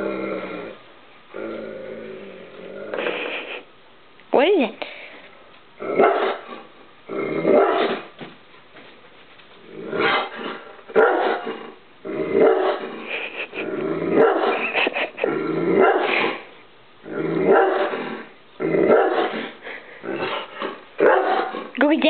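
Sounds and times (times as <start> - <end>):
dog barking and growling: 5.8 - 8.1, 9.8 - 21.8.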